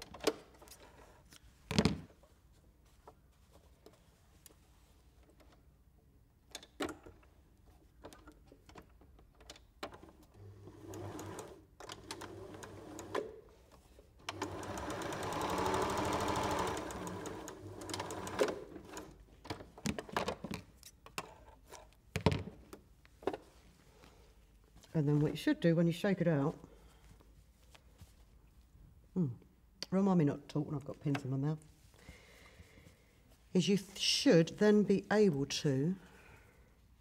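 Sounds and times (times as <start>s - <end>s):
sewing machine stitching: 10.3s - 13.4s, 14.2s - 19.2s.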